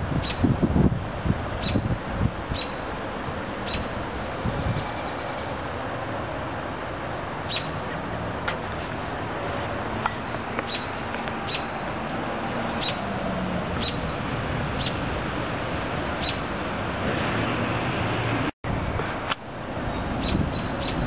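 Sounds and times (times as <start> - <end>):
wind rushing: 0.0 - 4.9
bird chirping: 0.2 - 0.4, 1.6 - 1.8, 2.5 - 2.8, 3.6 - 5.8, 7.4 - 7.8, 10.1 - 11.7, 12.4 - 13.1, 13.8 - 14.1, 14.8 - 15.0, 16.2 - 16.4, 19.9 - 21.0.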